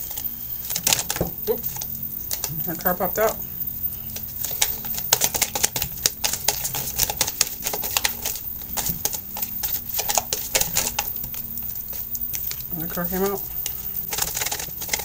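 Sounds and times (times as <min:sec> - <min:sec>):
cards being shuffled: 0:04.1 - 0:15.0.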